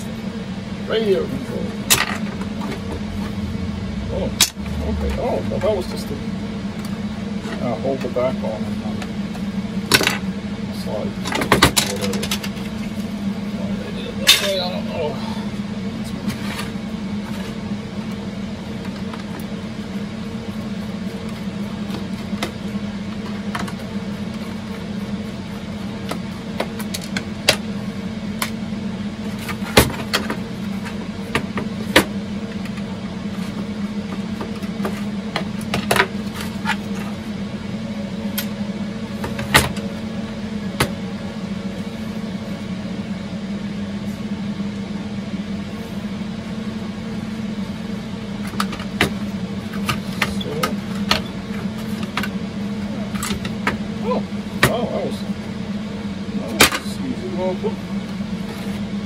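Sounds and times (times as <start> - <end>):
computer servers humming: 0.0 - 59.0.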